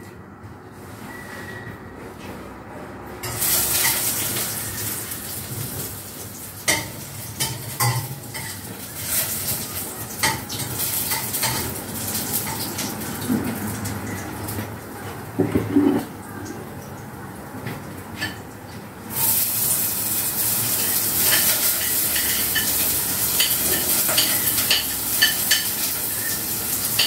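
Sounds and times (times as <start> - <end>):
food sizzling in a pan: 3.2 - 13.7, 19.1 - 27.0
metal utensil clinking on pan: 6.7 - 8.6.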